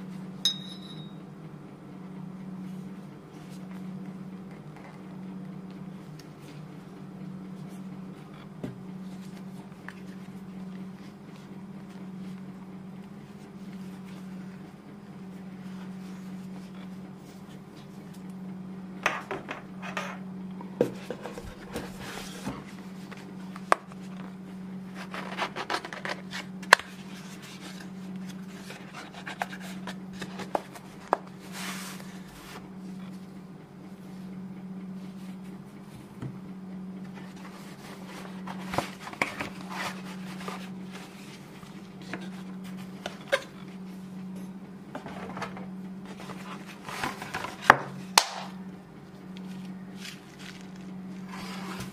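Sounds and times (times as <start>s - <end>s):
cardboard and paper rustling: 20.8s - 32.7s, 37.0s - 43.8s, 44.9s - 48.4s, 49.4s - 51.9s.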